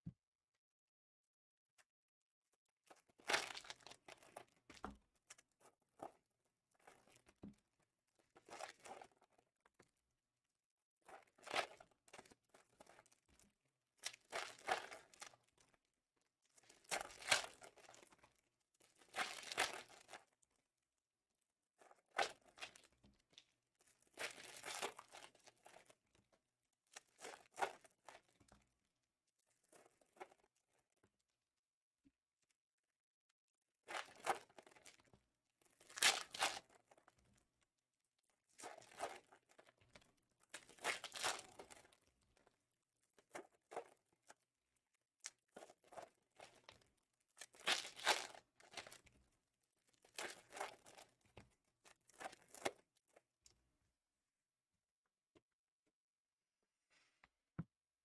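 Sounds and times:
plastic wrapping crinkling: 47.5s - 49.0s.

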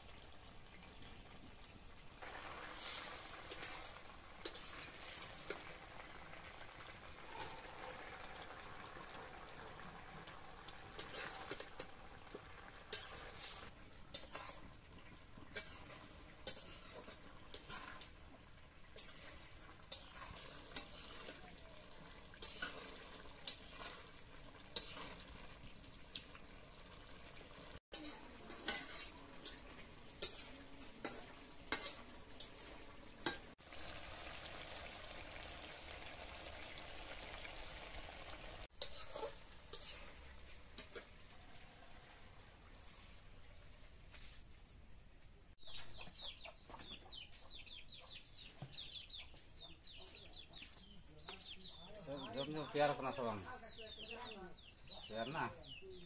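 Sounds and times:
curry simmering sizzle: 0.0s - 43.7s, 51.8s - 55.5s
spatula scraping a pan: 2.3s - 5.8s, 10.8s - 25.7s, 27.8s - 33.6s, 38.6s - 41.6s.

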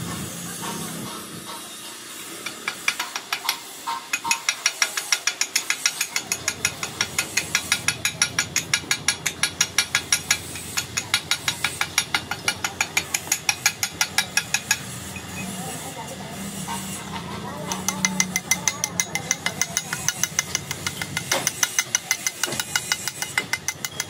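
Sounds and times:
chipping hammer striking metal: 2.4s - 15.3s, 17.7s - 24.0s.

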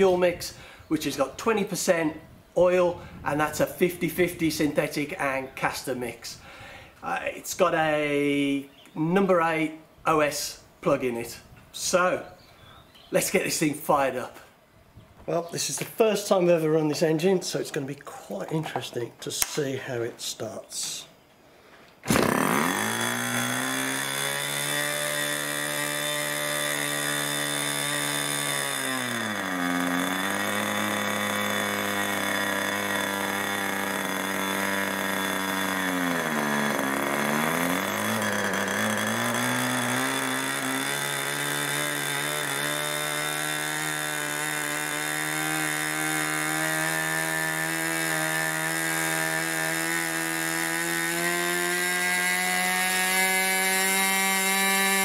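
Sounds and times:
model glow engine running: 22.1s - 55.0s.

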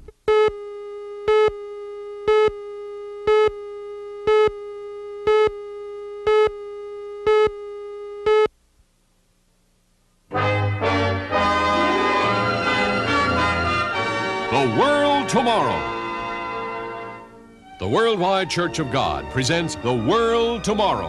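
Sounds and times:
countdown beeps: 5.2s - 5.6s.

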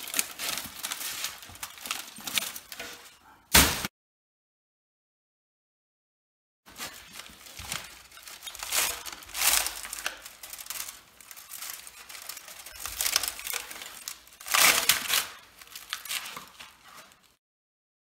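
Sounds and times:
wire bundles rustling and scraping: 0.0s - 3.4s, 6.7s - 17.4s.

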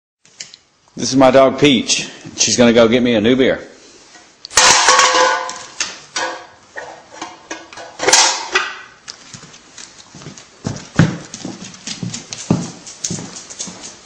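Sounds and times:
dog claws clicking on hard floor: 9.0s - 14.0s.

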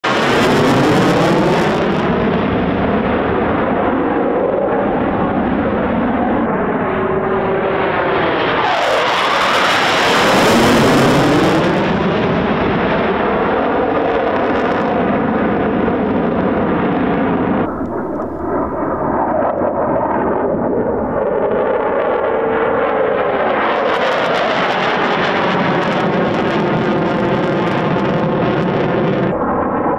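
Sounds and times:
jet engines roaring past: 0.0s - 29.9s.

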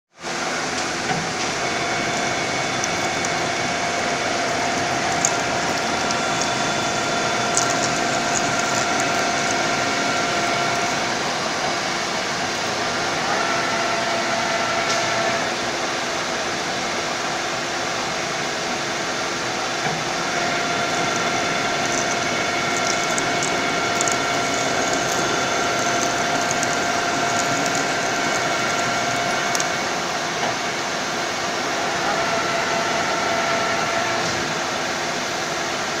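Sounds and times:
lathe mechanical whir: 0.3s - 36.0s
faint crackle of ticks: 2.0s - 9.9s, 21.0s - 29.8s.

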